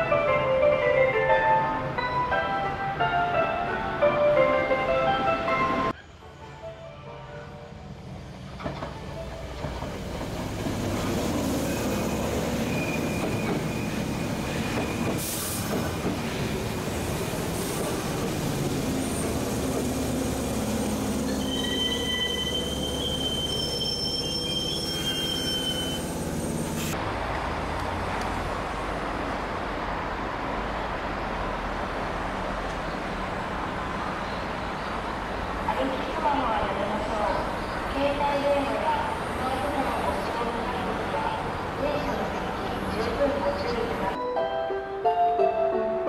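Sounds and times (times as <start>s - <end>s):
train wheels rumbling on rails: 8.1s - 22.9s
high wheel squeals: 11.6s - 15.2s, 20.8s - 27.0s.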